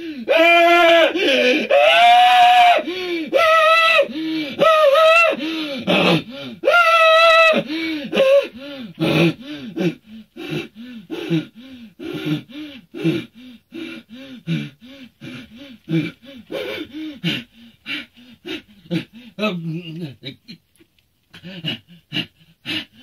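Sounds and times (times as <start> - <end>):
man's high-pitched cry: 0.3 - 8.5.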